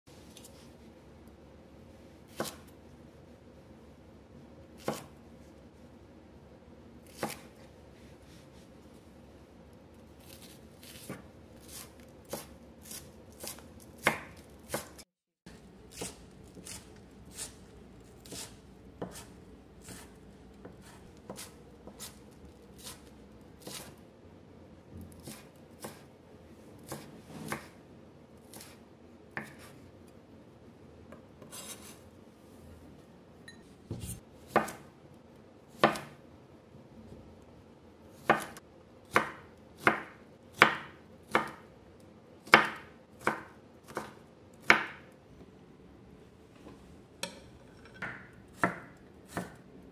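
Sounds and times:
knife chopping on cutting board: 0:02.3 - 0:02.8, 0:04.8 - 0:05.1, 0:07.0 - 0:07.6, 0:10.3 - 0:17.6, 0:18.2 - 0:23.9, 0:25.0 - 0:26.1, 0:26.8 - 0:27.8, 0:28.5 - 0:29.8, 0:33.9 - 0:34.9, 0:35.7 - 0:36.2, 0:38.2 - 0:41.6, 0:42.4 - 0:45.0, 0:47.2 - 0:49.6.

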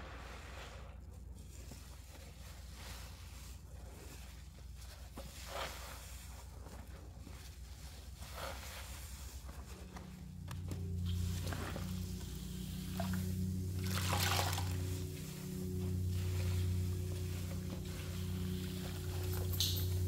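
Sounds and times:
foam squishing and crackling: 0:00.0 - 0:20.0
sponge squelches: 0:00.0 - 0:20.0.

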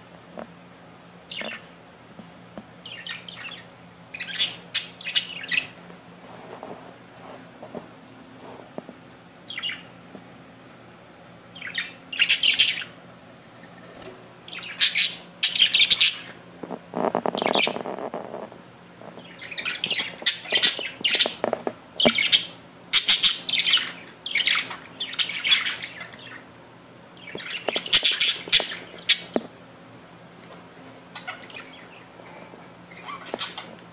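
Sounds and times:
budgerigars chattering and squawking: 0:01.3 - 0:01.6, 0:02.8 - 0:05.8, 0:11.6 - 0:13.0, 0:14.5 - 0:18.5, 0:19.2 - 0:26.5, 0:27.2 - 0:29.4, 0:31.2 - 0:32.2, 0:32.9 - 0:33.8.

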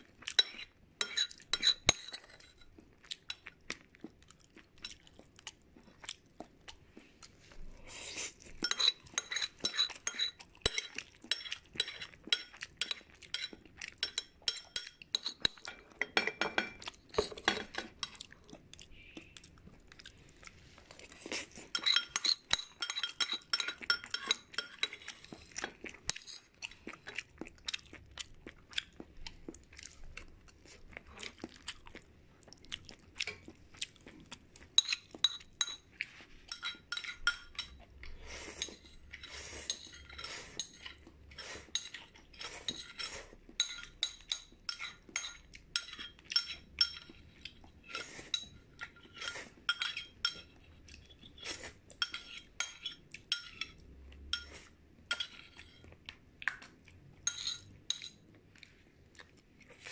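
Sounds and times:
chewing: 0:00.0 - 0:16.0, 0:16.8 - 0:57.3, 0:58.0 - 0:59.9
utensils clinking on a dish: 0:00.4 - 0:02.8, 0:08.6 - 0:18.2, 0:21.7 - 0:26.5, 0:38.6 - 0:41.0, 0:41.7 - 0:47.2, 0:47.9 - 0:50.6, 0:52.0 - 0:55.9, 0:57.2 - 0:58.3.

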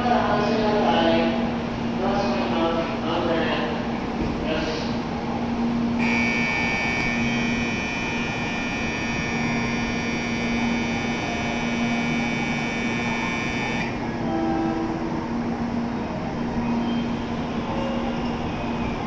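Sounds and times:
low hum of standing train: 0:00.0 - 0:19.0
platform departure bell ringing: 0:06.0 - 0:18.5.

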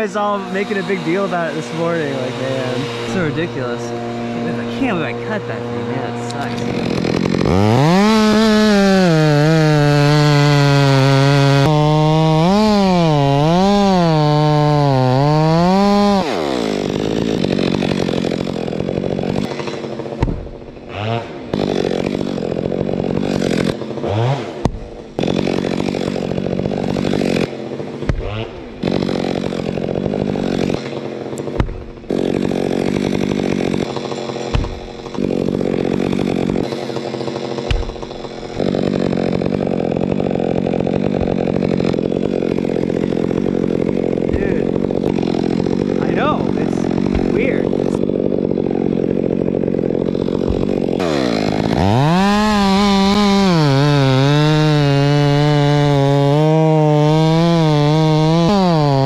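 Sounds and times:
chainsaw cutting wood: 0:00.0 - 0:59.0
knocks: 0:20.2 - 0:20.7, 0:31.5 - 0:32.0, 0:34.5 - 0:35.2, 0:37.7 - 0:38.1.

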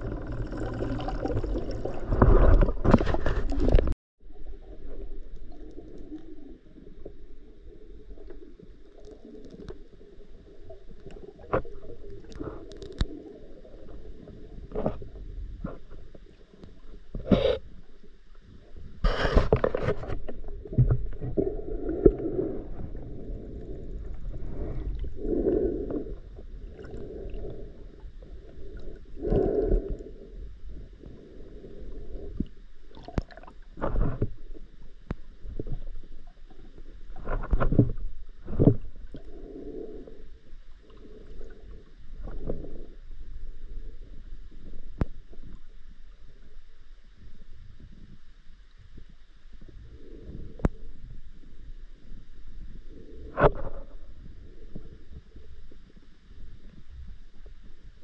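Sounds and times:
underwater clicks and knocks: 0:00.0 - 0:04.0, 0:19.2 - 0:21.4, 0:33.0 - 0:36.0, 0:37.2 - 0:39.0
underwater rushing water: 0:00.0 - 0:14.9.

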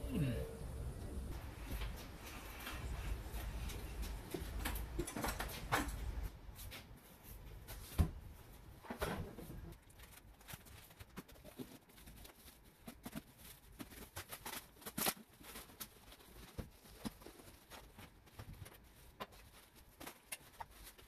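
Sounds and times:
packaging crinkling and rustling: 0:01.4 - 0:21.0
plastic packaging crackle: 0:09.7 - 0:21.0.

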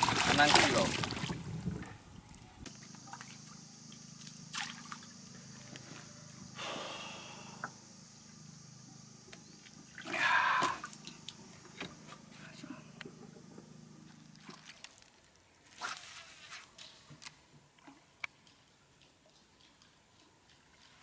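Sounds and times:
water splashing and dripping: 0:00.0 - 0:01.5, 0:04.2 - 0:05.1, 0:14.3 - 0:16.3
low steady hum: 0:00.0 - 0:21.0.

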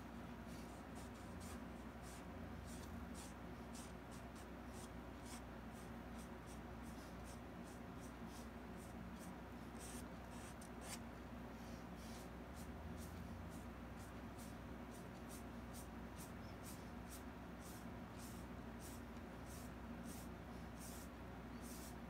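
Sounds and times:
steady low hum: 0:00.0 - 0:22.0
paintbrush scratchy strokes: 0:12.0 - 0:22.0.

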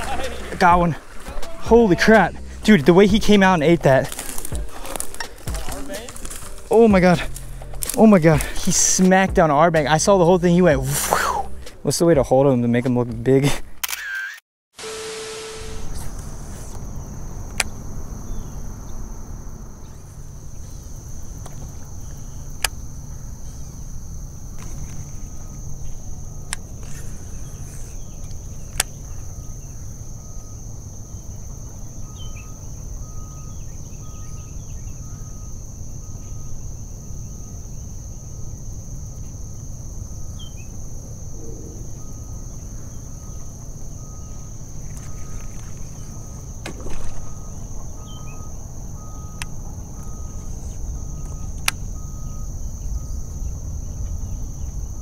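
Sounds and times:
high-pitched insect chorus: 0:00.0 - 0:12.8, 0:14.8 - 0:55.0
low wind rumble: 0:00.0 - 0:13.2, 0:15.6 - 0:55.0
handling noise: 0:03.8 - 0:08.6.

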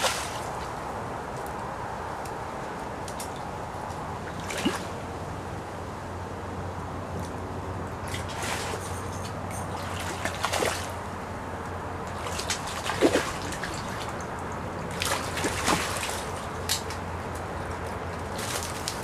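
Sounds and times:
fish thrashing in water: 0:04.2 - 0:05.0, 0:08.0 - 0:11.0, 0:12.1 - 0:17.0.

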